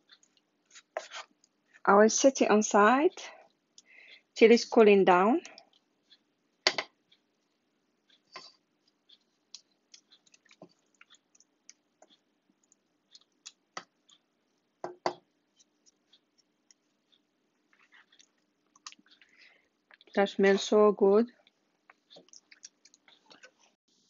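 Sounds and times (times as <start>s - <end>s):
faint steady hum: 0.0s - 24.0s
wooden spoon stirring in saucepan: 0.2s - 1.8s, 7.3s - 23.8s
spoon knocking against pan: 14.8s - 15.2s.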